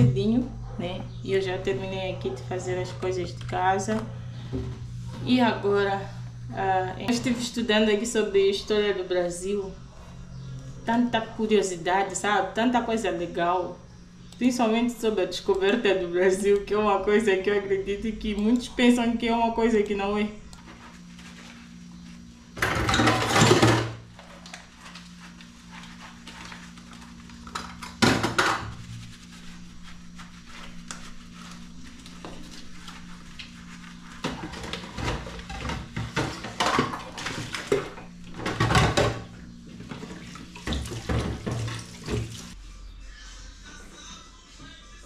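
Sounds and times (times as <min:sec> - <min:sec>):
steady low hum: 0:00.0 - 0:45.0
plastic jugs and cups clattering: 0:22.6 - 0:24.0, 0:27.5 - 0:28.7, 0:34.2 - 0:42.5
tap running: 0:34.2 - 0:42.6.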